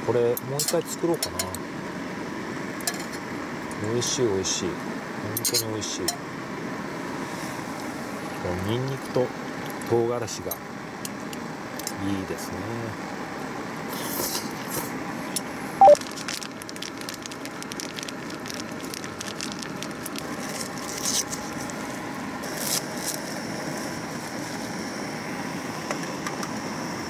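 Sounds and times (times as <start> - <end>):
clicking and crackling in pot: 15.4 - 22.0.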